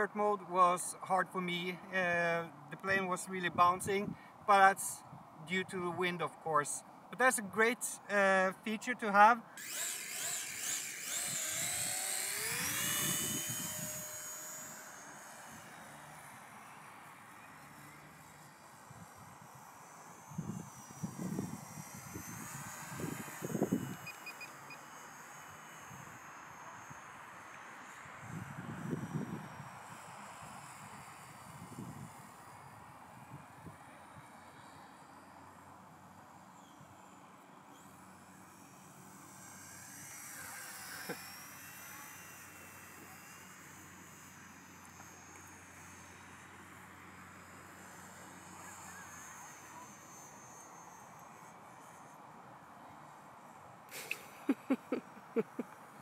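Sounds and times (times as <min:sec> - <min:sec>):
high-pitched electric motor whine: 0:00.0 - 0:56.0
wind gusting on microphone: 0:11.1 - 0:14.2, 0:20.3 - 0:24.1.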